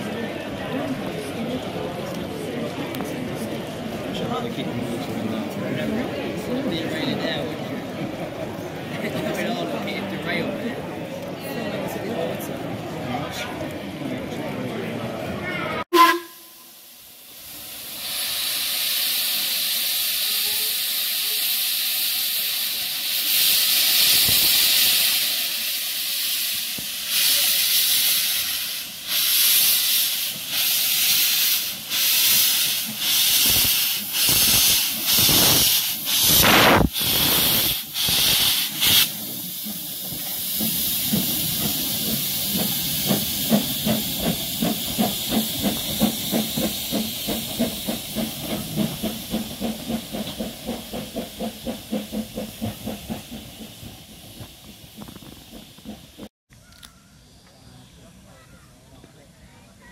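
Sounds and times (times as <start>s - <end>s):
steam locomotive exhaust beat: 15.9s - 56.3s
blasts of hissing steam: 16.0s - 56.3s
steam hiss: 16.0s - 56.3s.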